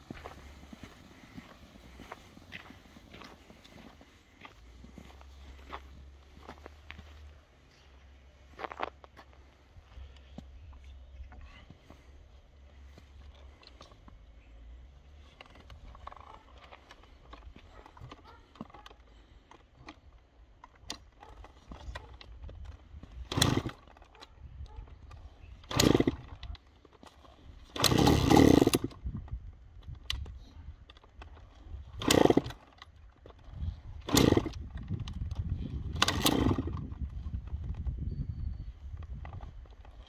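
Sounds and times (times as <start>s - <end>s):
motorcycle engine kick-started: 15.2s - 24.2s, 25.0s - 30.2s, 30.9s - 40.0s.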